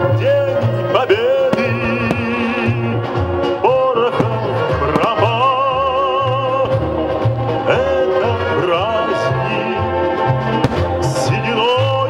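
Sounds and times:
person singing with vibrato: 0.0s - 6.8s, 7.6s - 10.2s
repeating bass line: 0.0s - 12.0s.

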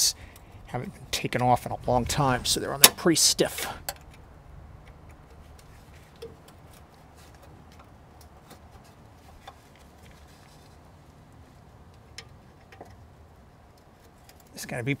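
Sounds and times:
small clicks and light scraping: 3.8s - 14.9s.

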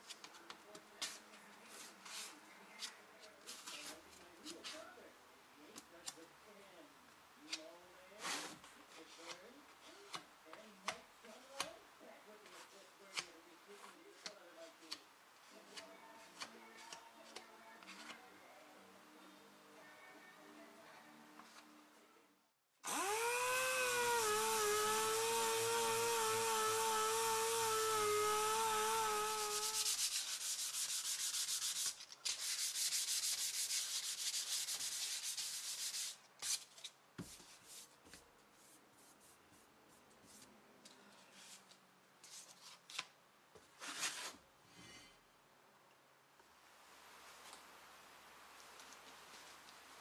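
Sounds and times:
sandpaper scrubbing metal: 24.4s - 36.6s.

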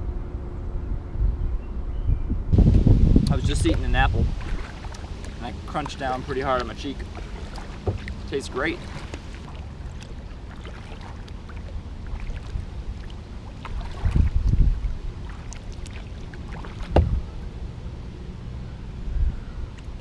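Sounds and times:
wind rumble on microphone: 0.0s - 20.0s
water splashes: 3.2s - 17.8s
kayak paddle strokes in water: 3.4s - 17.5s.

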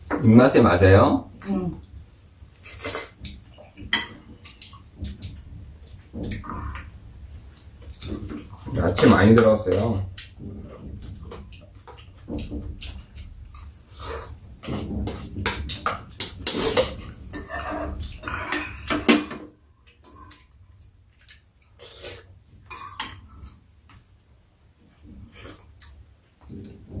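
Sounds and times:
utensils clinking against bowls: 14.8s - 20.5s.

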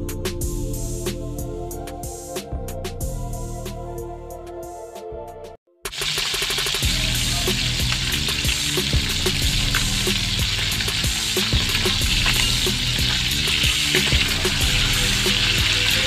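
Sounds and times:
fish frying in bubbling oil: 5.9s - 16.0s.

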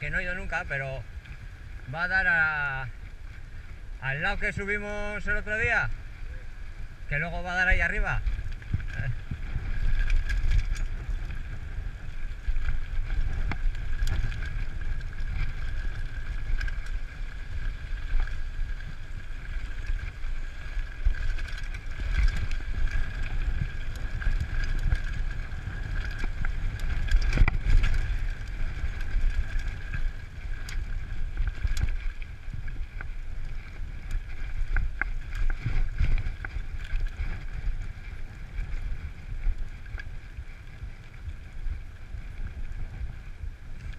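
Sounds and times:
bike tyre noise: 0.0s - 43.9s
wind rumbling on microphone: 0.0s - 43.9s
bike rattling and knocking: 7.4s - 40.0s.

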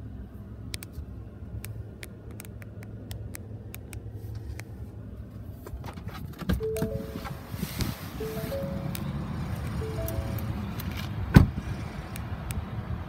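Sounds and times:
low rumble inside truck cab: 0.0s - 13.0s
three-note electronic chime: 6.6s - 10.8s.

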